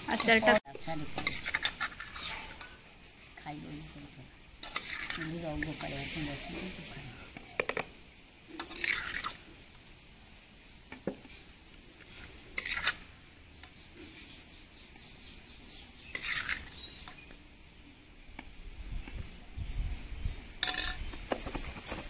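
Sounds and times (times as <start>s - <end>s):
steel spoon scraping metal pot: 0.0s - 2.8s, 4.6s - 6.9s, 8.6s - 9.4s, 12.0s - 13.1s, 16.0s - 17.0s.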